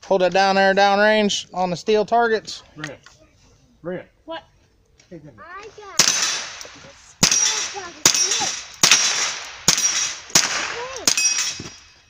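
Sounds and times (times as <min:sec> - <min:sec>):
rifle shots: 0:05.7 - 0:11.9
steel target ringing: 0:07.2 - 0:12.0.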